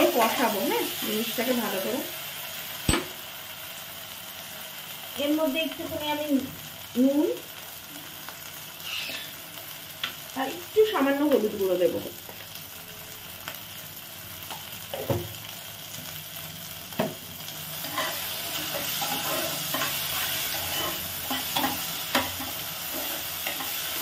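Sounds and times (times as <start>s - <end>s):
spice paste sizzling in oil: 0.0s - 24.0s
metal spatula scraping pot: 8.8s - 9.4s, 17.8s - 24.0s.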